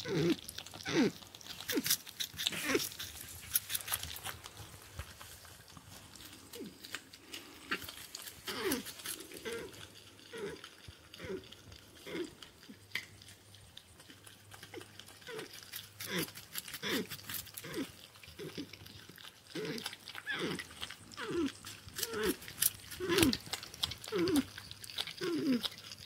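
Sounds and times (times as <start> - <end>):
porcupine crunching and chewing: 0.0 - 26.0
porcupine whining calls: 20.2 - 23.4.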